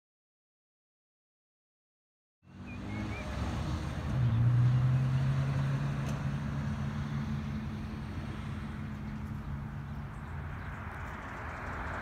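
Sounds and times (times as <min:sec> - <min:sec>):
traffic noise: 0:02.4 - 0:12.0
vehicle engine humming: 0:02.4 - 0:12.0.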